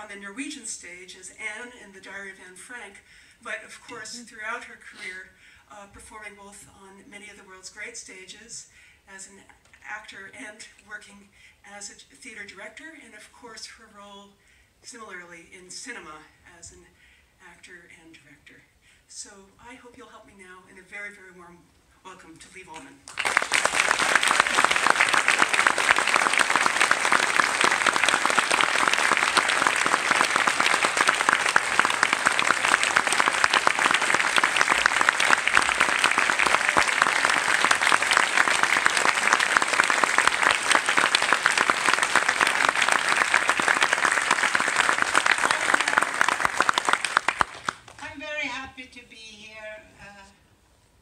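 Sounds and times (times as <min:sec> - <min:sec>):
audience applauding: 0:23.1 - 0:48.0.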